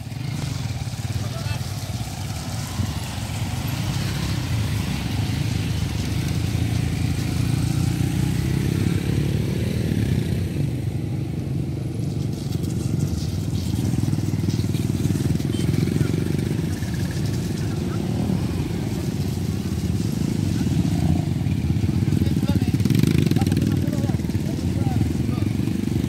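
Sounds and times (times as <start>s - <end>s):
motorcycle engine running: 0.0s - 26.0s.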